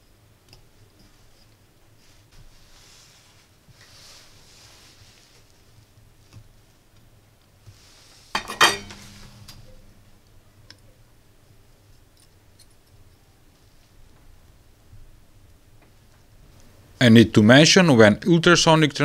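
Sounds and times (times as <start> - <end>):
metal tools clicking and clattering: 8.4 - 9.7.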